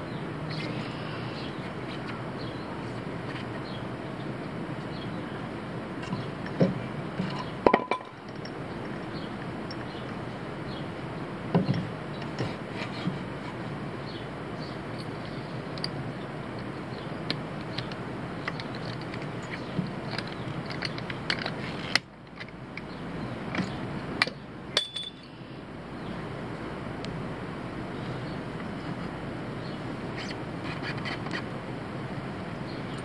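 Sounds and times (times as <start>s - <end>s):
steady background hiss: 0.0s - 33.0s
light metal clicks and knocks: 6.0s - 10.2s, 16.6s - 25.3s.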